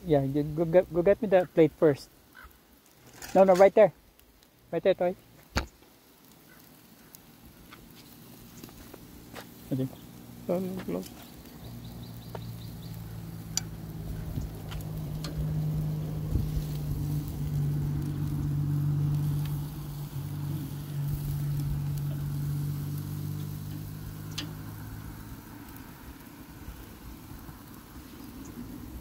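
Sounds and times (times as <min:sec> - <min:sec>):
engine humming: 0:06.2 - 0:29.0
tongs clicking on grill grate: 0:13.0 - 0:15.8, 0:19.0 - 0:25.0.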